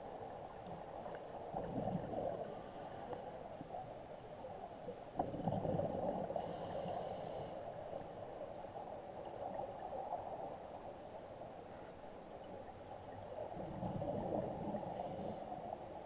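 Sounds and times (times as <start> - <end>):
muffled underwater rush: 12.7 - 16.0.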